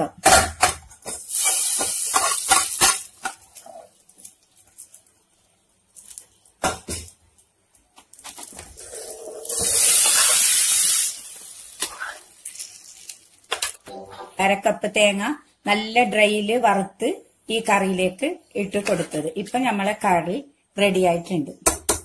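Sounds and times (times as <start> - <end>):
hot coconut hissing in a pot: 1.3 - 2.9, 8.8 - 12.3.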